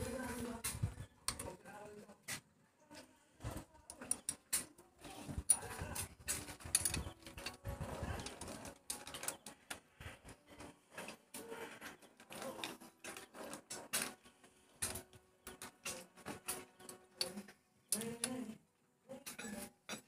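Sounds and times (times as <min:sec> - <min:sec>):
hand tools tapping on metal: 0:05.4 - 0:09.8.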